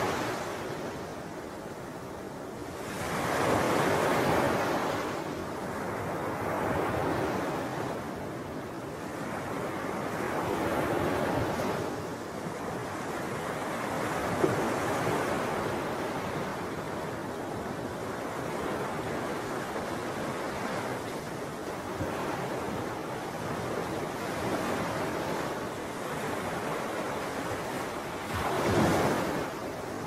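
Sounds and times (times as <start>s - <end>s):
small waves on lake: 0.0s - 30.0s.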